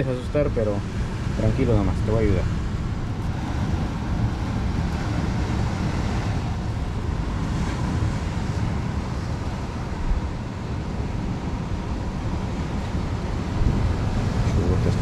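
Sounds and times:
surf washing on rocks: 0:00.0 - 0:15.0
wind buffeting microphone: 0:00.0 - 0:15.0.

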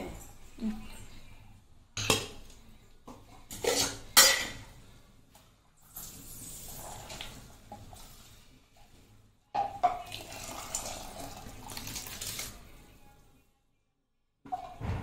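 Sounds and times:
water splashing and pouring: 0:09.9 - 0:12.7.

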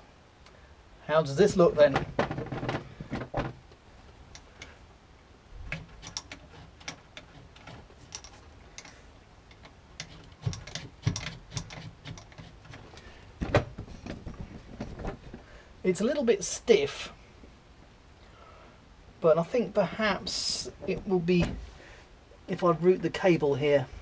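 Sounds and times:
gear lever clicks and clunks: 0:05.7 - 0:14.2.

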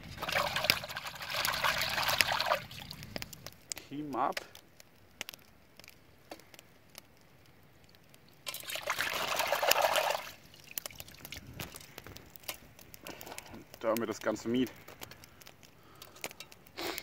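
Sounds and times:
water sloshing in a metal pot: 0:08.4 - 0:12.6.

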